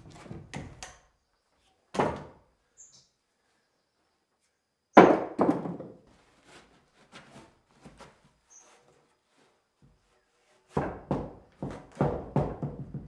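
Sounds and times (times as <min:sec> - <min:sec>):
wood battens knocking on floor: 0:05.0 - 0:06.0, 0:10.7 - 0:13.0.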